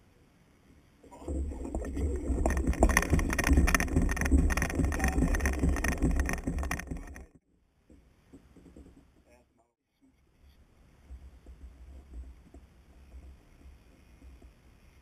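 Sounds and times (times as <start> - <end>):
wind on microphone: 1.1 - 7.4
fishing reel rapid clicking: 1.3 - 7.3.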